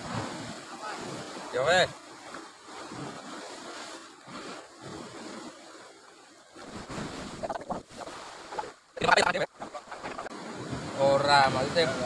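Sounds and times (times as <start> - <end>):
sea surf washing on shore: 0.0 - 12.0
wind on microphone: 6.6 - 8.8, 9.5 - 12.0.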